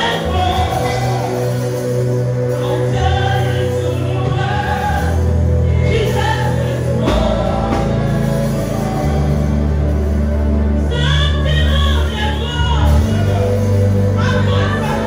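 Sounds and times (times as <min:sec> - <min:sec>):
electric bass long notes: 0:00.0 - 0:15.0
gospel band playing: 0:00.0 - 0:15.0
woman singing into a microphone: 0:10.8 - 0:15.0.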